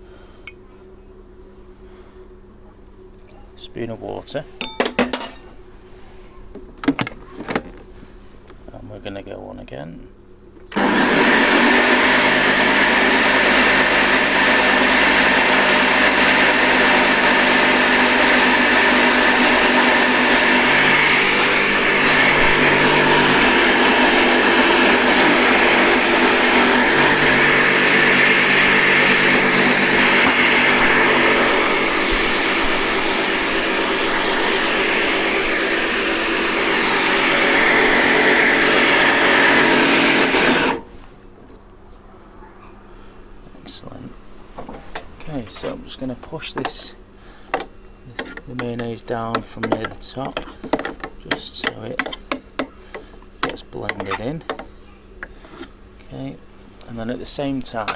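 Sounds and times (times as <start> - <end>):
blender motor whirring: 10.7 - 40.9.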